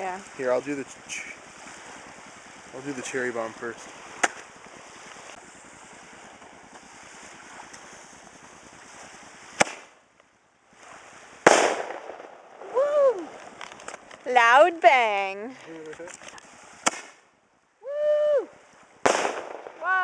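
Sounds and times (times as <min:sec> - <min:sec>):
firework crack: 0:00.0 - 0:20.0
steady low hiss: 0:00.0 - 0:20.0
firework bang: 0:03.7 - 0:10.0, 0:11.4 - 0:12.9, 0:16.7 - 0:17.2, 0:19.0 - 0:20.0.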